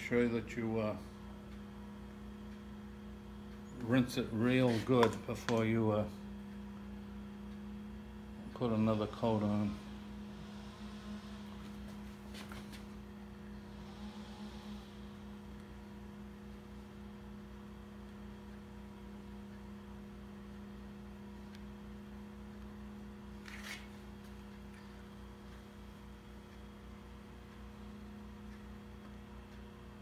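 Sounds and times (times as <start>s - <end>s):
faint electrical hum: 0.0s - 30.0s.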